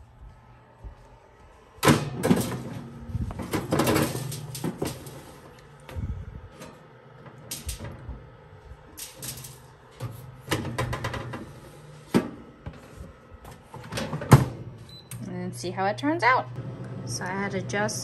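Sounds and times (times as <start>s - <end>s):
low hum: 0.0s - 18.0s
metal basket clatter: 3.4s - 5.5s, 7.5s - 7.9s, 8.9s - 9.7s.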